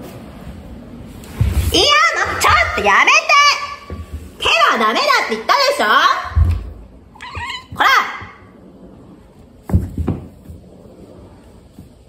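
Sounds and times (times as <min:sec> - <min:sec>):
low thumps on wooden floor: 0:09.6 - 0:10.8.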